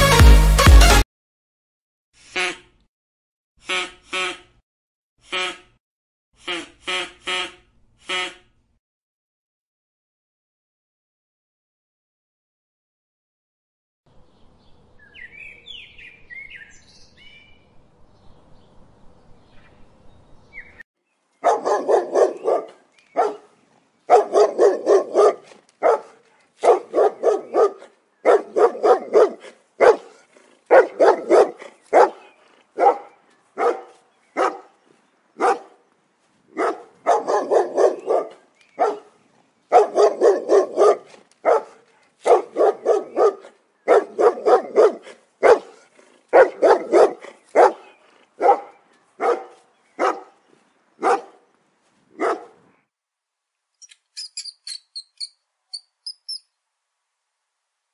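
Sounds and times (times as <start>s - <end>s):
dog barking: 21.4s - 23.5s, 24.1s - 34.8s, 35.4s - 35.8s, 36.5s - 50.4s, 51.0s - 51.5s, 52.1s - 52.6s.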